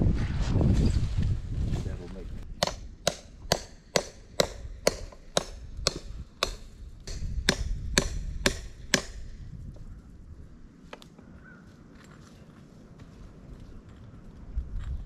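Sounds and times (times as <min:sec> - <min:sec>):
hand tool striking wooden post: 0:02.6 - 0:09.3.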